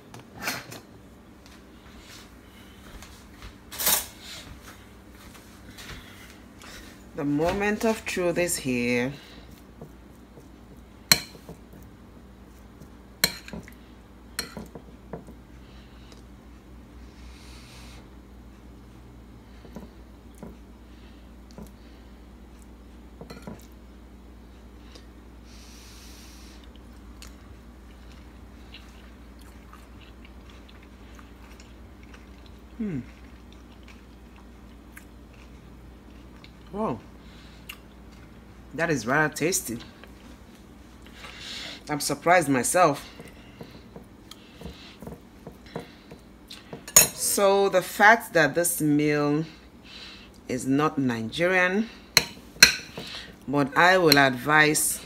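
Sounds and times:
steady low hum: 0:00.0 - 0:55.0
person chewing food: 0:26.6 - 0:38.7, 0:43.1 - 0:46.9
person humming mmm: 0:32.8 - 0:33.2.

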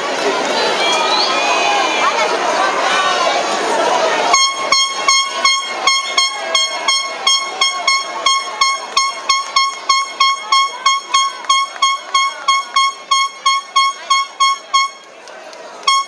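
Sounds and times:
crowd voices: 0:00.0 - 0:16.0
high repeating horn-like beep: 0:04.3 - 0:15.1.

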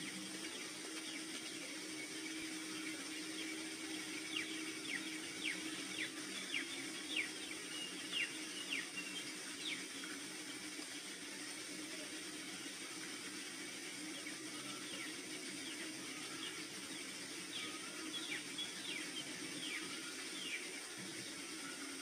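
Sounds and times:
steady hiss: 0:00.0 - 0:22.0.

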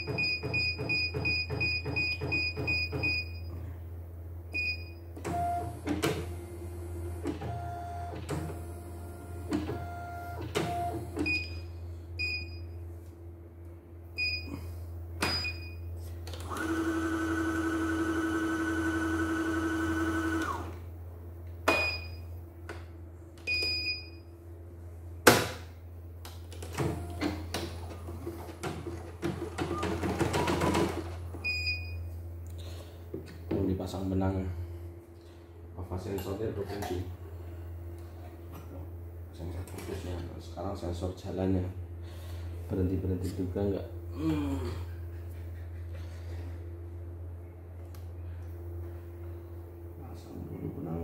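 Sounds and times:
embroidery arm motor whine: 0:16.4 - 0:20.9.

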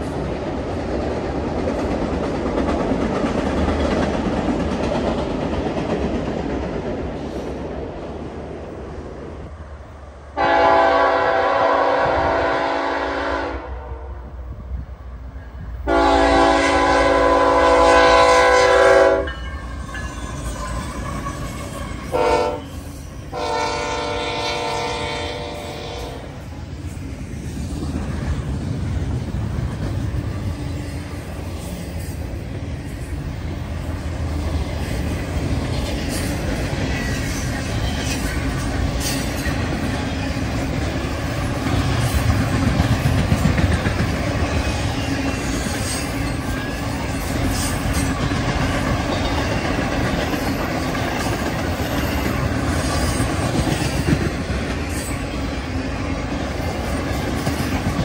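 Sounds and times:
train wheels rumbling on rail: 0:00.0 - 0:58.0
wheels clicking over rail joints: 0:34.2 - 0:55.4.

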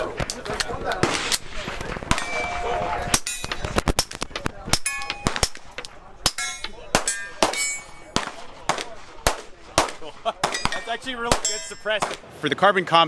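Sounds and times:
steel targets ringing: 0:02.1 - 0:03.6, 0:04.8 - 0:05.4, 0:06.3 - 0:08.2, 0:10.4 - 0:12.0.

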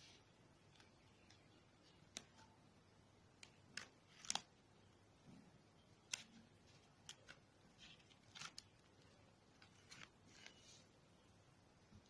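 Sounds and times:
cardstock paper rustling: 0:03.7 - 0:04.5, 0:06.1 - 0:10.9.

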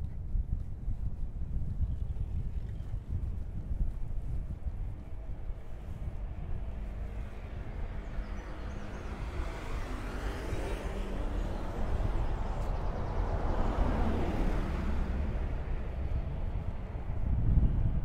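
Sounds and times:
low traffic rumble: 0:00.0 - 0:18.0
bus passing: 0:03.0 - 0:18.0
motorbike passing: 0:04.2 - 0:18.0.

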